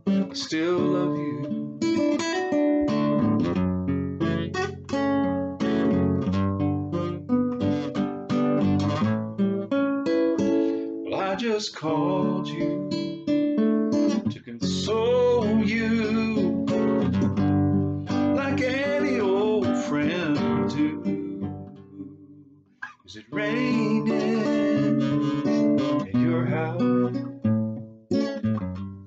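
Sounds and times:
man singing: 0.0 - 1.7, 11.1 - 13.3, 14.3 - 17.1, 18.1 - 22.3, 23.1 - 27.3
acoustic guitar: 0.0 - 29.0.

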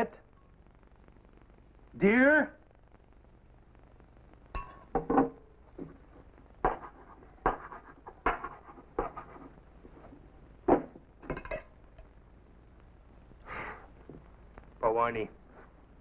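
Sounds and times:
tin cup knocking on wooden table: 4.7 - 5.4.

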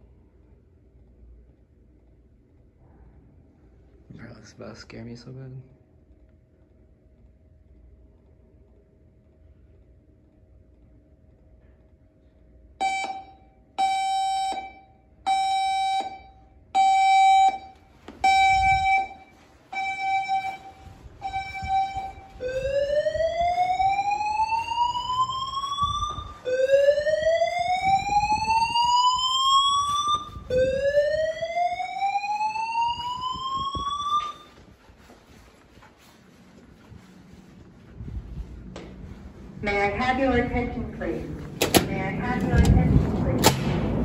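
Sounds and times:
fire alarm beeps: 12.7 - 34.8
rising whoop alarm sweeps: 18.2 - 34.6.

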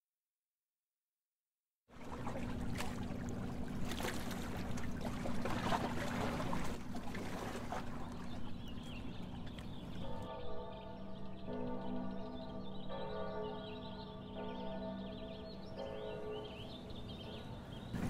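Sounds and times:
water lapping and splashing: 1.9 - 10.7
low steady hum: 2.0 - 18.0.

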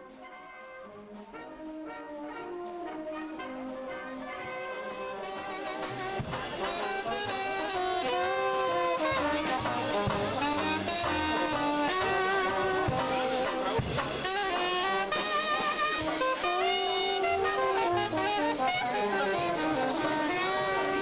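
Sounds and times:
trombone: 0.0 - 21.0
trumpet: 0.0 - 21.0
strummed banjo: 4.8 - 21.0
plucked double bass: 5.4 - 21.0.

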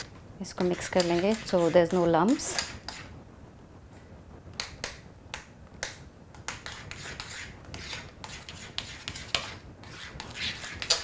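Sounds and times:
soft scraping through cream: 0.0 - 3.1, 6.5 - 11.0.

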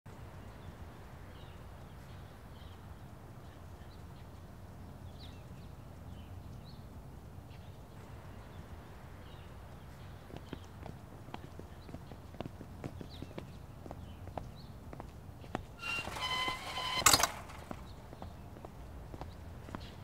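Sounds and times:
footsteps on paving: 9.9 - 15.7, 17.6 - 20.0.

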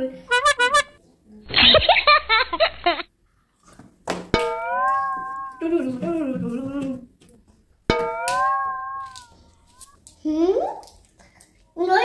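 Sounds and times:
pitched wailing call: 4.4 - 5.8, 7.9 - 10.0.

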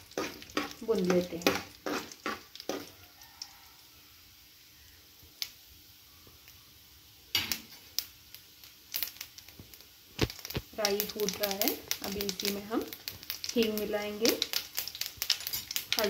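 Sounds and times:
mustard seeds popping: 0.0 - 3.0, 7.3 - 16.0
oil sizzling: 0.0 - 16.0.

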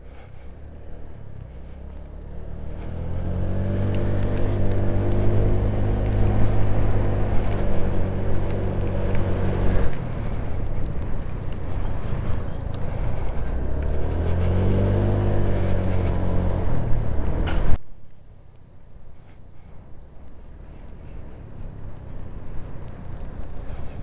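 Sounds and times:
scooter engine running: 0.0 - 17.8.

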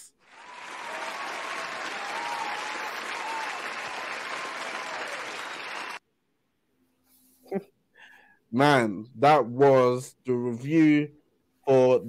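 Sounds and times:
crowd applause: 0.0 - 6.0.

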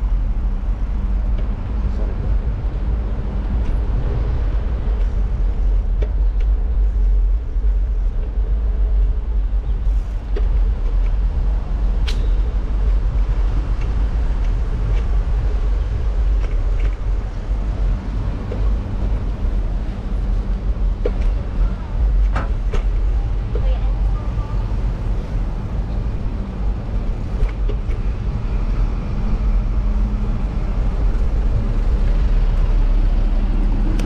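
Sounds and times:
bike clicks and rattles: 0.0 - 23.7, 26.8 - 28.4.

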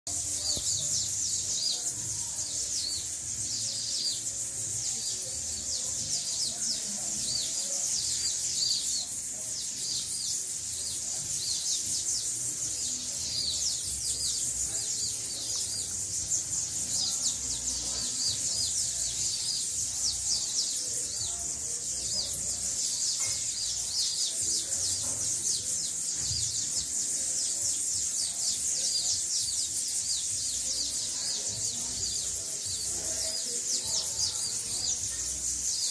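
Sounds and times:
small birds chirping: 0.1 - 35.9.

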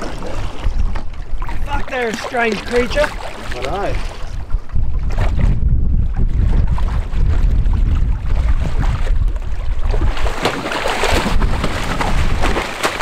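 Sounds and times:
wind on microphone: 0.0 - 13.0
shark splashing at the surface: 9.9 - 13.0.

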